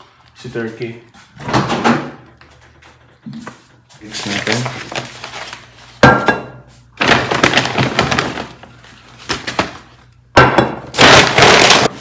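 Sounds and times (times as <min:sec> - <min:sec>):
rustling of groceries: 0:03.3 - 0:06.0, 0:06.6 - 0:10.1, 0:11.0 - 0:12.0
groceries knocking on a counter: 0:06.0 - 0:08.6, 0:09.3 - 0:11.9.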